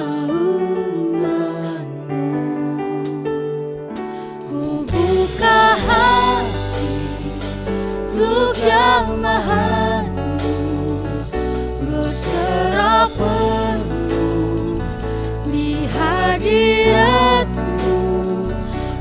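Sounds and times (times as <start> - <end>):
group singing praise song: 0.0 - 3.4, 4.4 - 19.0
band with bass guitar drums keyboard: 4.8 - 19.0.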